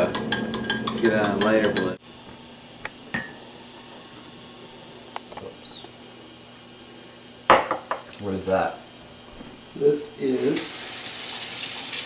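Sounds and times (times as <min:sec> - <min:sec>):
glass and utensils clinking: 0:00.0 - 0:02.0.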